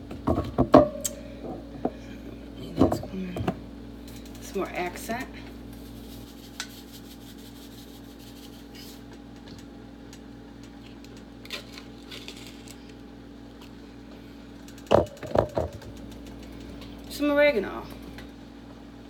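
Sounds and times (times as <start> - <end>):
low electrical hum: 0.0 - 19.0
heavy knocks on counter: 14.9 - 15.9.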